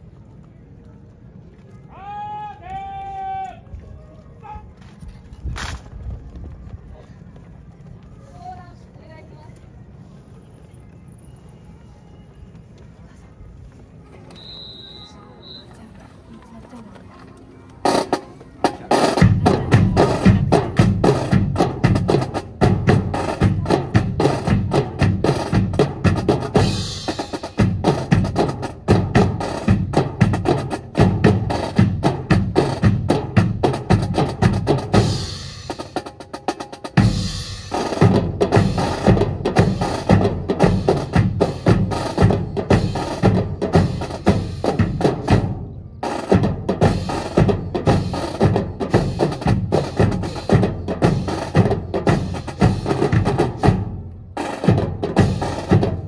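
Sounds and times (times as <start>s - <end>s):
snare and bass drums: 17.8s - 56.0s.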